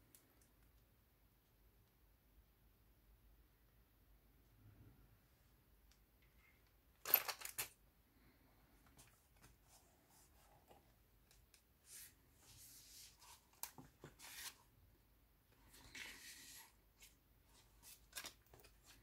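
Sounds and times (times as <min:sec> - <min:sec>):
paper pages rustling: 0:11.9 - 0:14.7.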